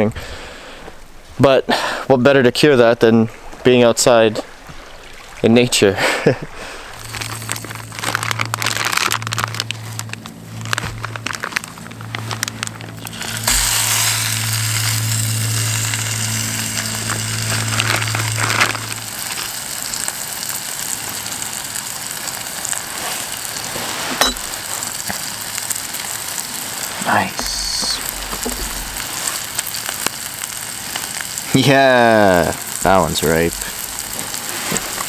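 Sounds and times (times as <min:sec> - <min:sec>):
food sizzling in frying pan: 0:07.0 - 0:35.0
plastic bag crinkling: 0:07.0 - 0:35.0.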